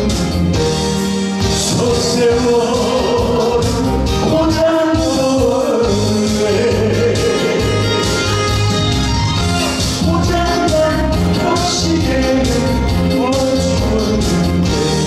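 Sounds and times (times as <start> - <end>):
backing band track over loudspeakers: 0.0 - 15.0
man singing into a microphone: 1.4 - 8.0, 10.0 - 15.0.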